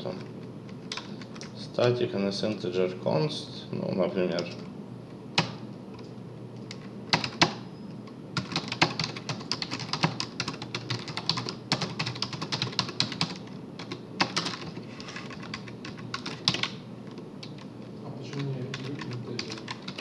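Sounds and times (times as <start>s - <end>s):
computer keyboard typing: 0.9s - 1.5s, 5.4s - 5.6s, 6.7s - 7.6s, 8.4s - 16.8s, 17.4s - 20.0s.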